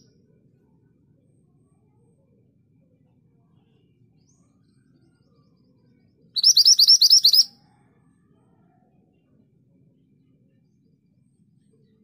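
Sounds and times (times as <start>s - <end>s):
bird high rising chirps: 6.4s - 7.5s.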